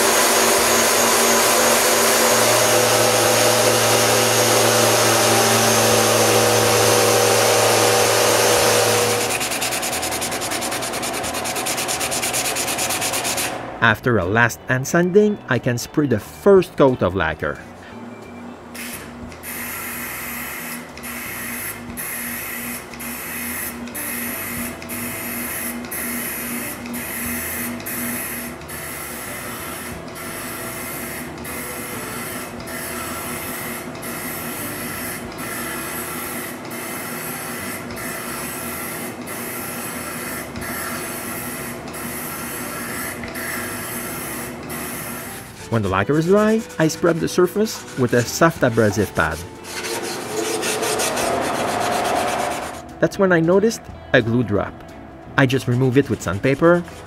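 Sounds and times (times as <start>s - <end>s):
aerosol spray can hissing: 8.4s - 13.5s, 33.2s - 45.6s.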